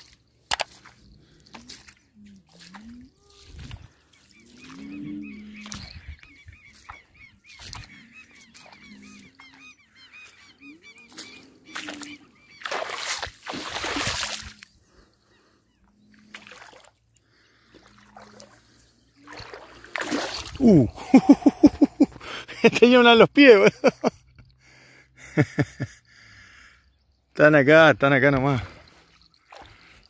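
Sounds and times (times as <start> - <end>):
wading through shallow water: 0.0 - 30.0
high bird chirps: 3.3 - 13.3.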